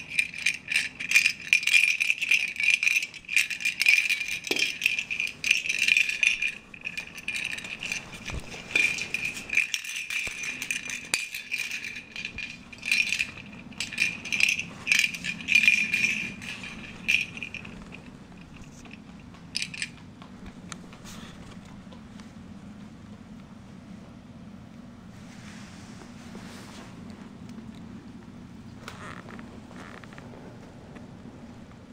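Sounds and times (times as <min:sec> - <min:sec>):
plastic rattle ball rattling: 0:00.0 - 0:20.0.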